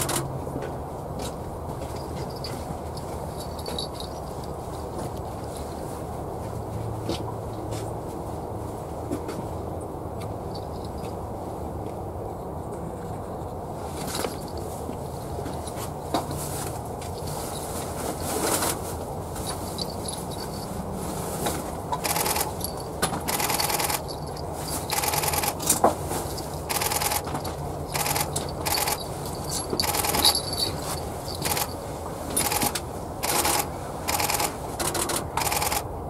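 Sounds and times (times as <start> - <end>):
camera shutters clicking: 32.4 - 35.8.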